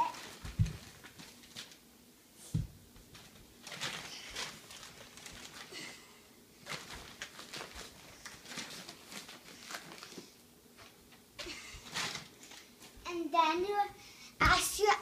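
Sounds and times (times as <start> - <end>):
plastic tarp crinkling and rustling: 0.0 - 1.8, 3.1 - 12.8.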